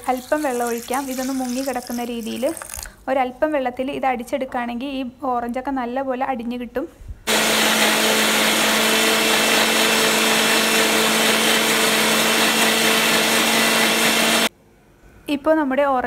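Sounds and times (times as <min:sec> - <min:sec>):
mixer grinder whirring: 0:07.3 - 0:14.5.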